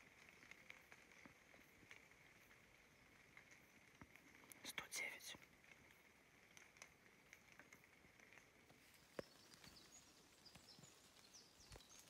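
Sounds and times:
faint clicks: 0.0s - 9.9s
bird chirps: 8.9s - 12.0s.

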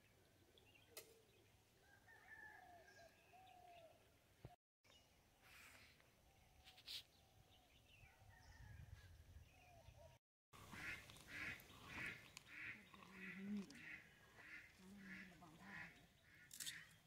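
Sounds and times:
ducks quacking: 10.6s - 16.5s.

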